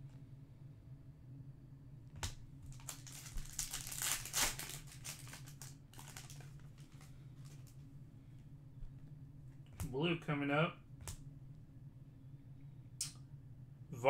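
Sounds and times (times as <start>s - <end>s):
foil pack crinkling: 2.2s - 7.8s.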